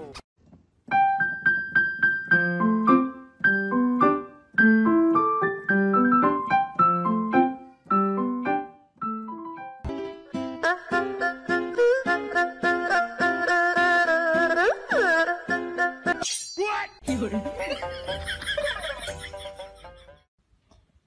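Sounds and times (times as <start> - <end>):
piano melody: 0.8 - 14.6.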